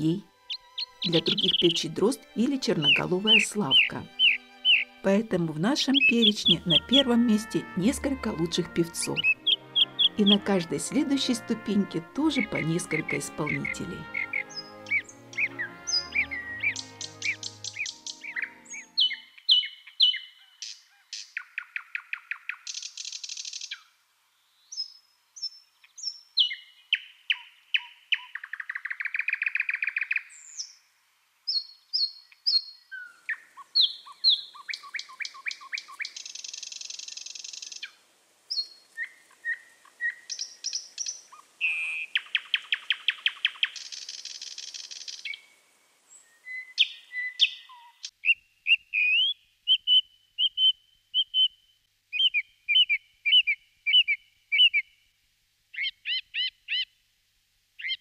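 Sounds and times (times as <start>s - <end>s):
song thrush singing: 0.0s - 30.8s, 31.5s - 54.9s, 57.8s - 58.0s
thrush nightingale singing: 0.0s - 30.9s, 31.5s - 55.0s, 55.7s - 56.9s, 57.8s - 58.0s.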